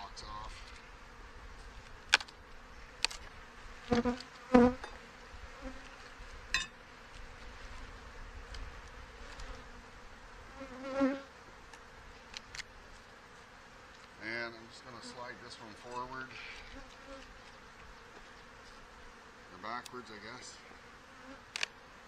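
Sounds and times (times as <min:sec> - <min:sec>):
bees buzzing: 0:00.6 - 0:22.0.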